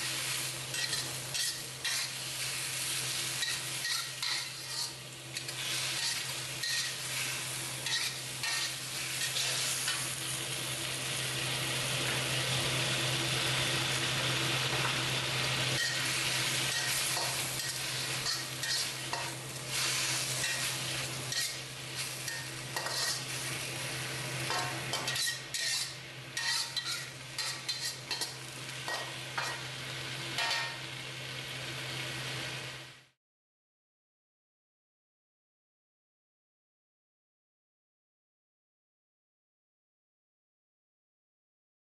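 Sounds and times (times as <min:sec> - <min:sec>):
metal spatula scraping a wok: 0:00.0 - 0:10.3, 0:15.8 - 0:30.9
food sizzling in a wok: 0:00.0 - 0:33.2.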